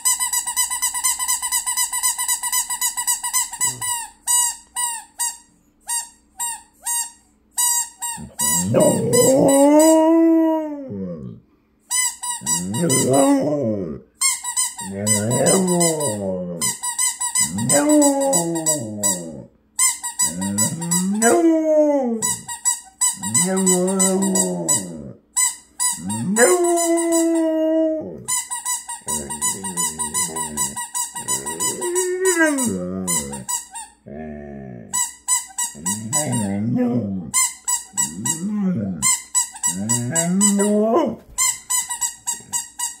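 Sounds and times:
dog howling: 0:08.2 - 0:11.4, 0:12.4 - 0:14.0, 0:14.8 - 0:16.8, 0:17.4 - 0:19.5, 0:20.2 - 0:22.5, 0:23.2 - 0:25.2, 0:26.0 - 0:28.3, 0:29.1 - 0:33.5, 0:35.8 - 0:37.4, 0:38.0 - 0:39.0, 0:39.7 - 0:41.3.

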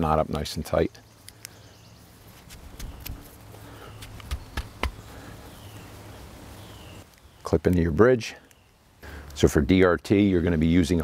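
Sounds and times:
rope and carabiner clicks: 0:02.4 - 0:03.4, 0:04.0 - 0:05.0.

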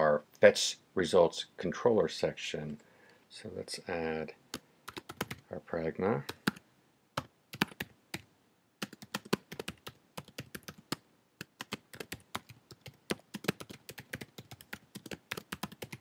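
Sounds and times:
typing on computer keyboard: 0:04.9 - 0:05.4, 0:07.6 - 0:07.9, 0:08.8 - 0:16.0.

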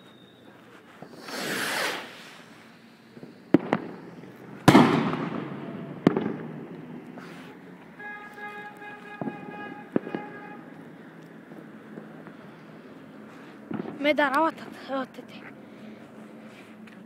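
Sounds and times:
firework rocket launch hiss: 0:00.0 - 0:07.8
firework bangs: 0:00.0 - 0:14.9.

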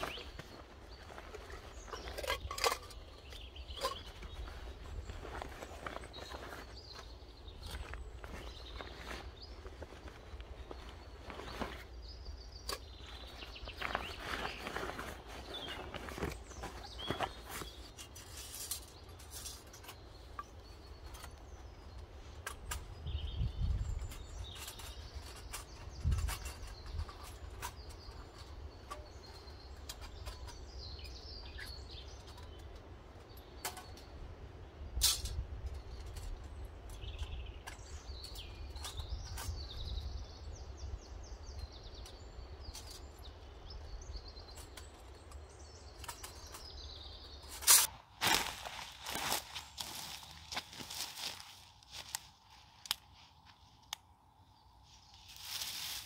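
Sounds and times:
small birds chirping and trilling: 0:00.0 - 0:56.0
metal camp stove clicks and knocks: 0:01.9 - 0:04.3.

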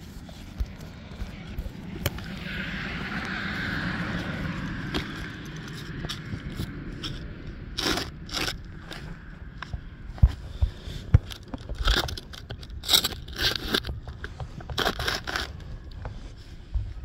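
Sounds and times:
rustling and scraping on microphone: 0:00.0 - 0:17.0.

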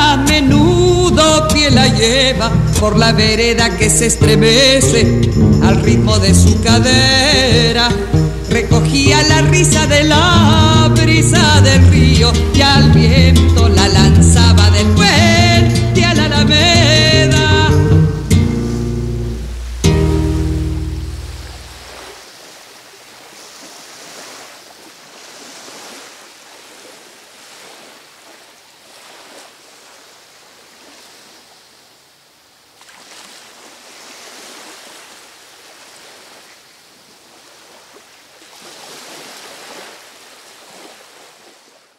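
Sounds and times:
sea waves washing onto beach: 0:09.8 - 0:14.6, 0:18.2 - 0:41.9
music chord: 0:17.6 - 0:21.8.

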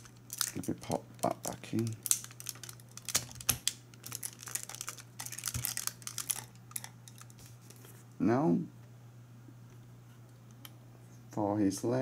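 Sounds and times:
plastic armor pieces clicking: 0:00.3 - 0:07.4.

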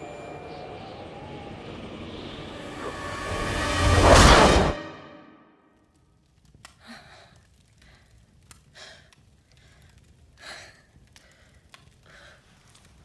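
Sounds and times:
faint clicks: 0:06.4 - 0:13.0
woman breathing heavily: 0:06.8 - 0:12.8.

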